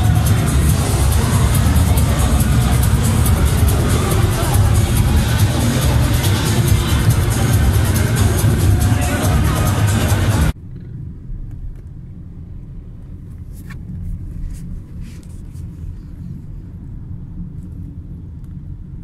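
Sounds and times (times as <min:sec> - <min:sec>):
electronic dance music: 0:00.0 - 0:10.6
vehicle rumble from on board: 0:10.3 - 0:19.0.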